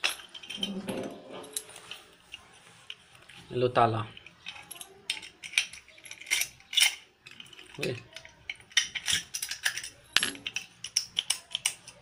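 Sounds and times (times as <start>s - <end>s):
padlock clicking and rattling: 4.1s - 12.0s.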